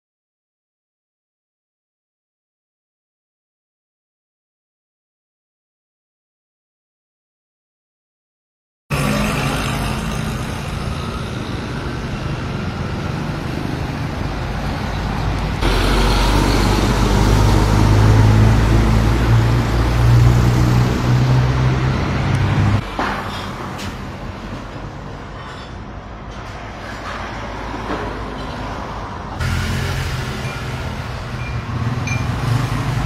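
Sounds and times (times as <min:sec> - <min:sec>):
street traffic: 0:08.9 - 0:33.0.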